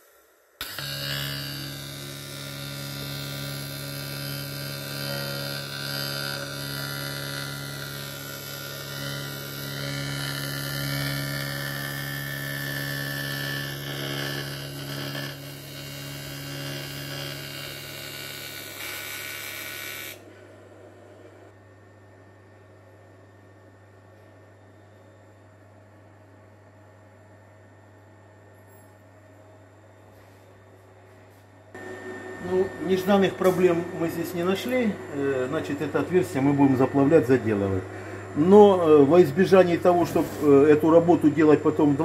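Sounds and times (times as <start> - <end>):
welding arc buzzing: 0.0 - 20.3, 31.8 - 42.0
faint hum: 20.1 - 42.0.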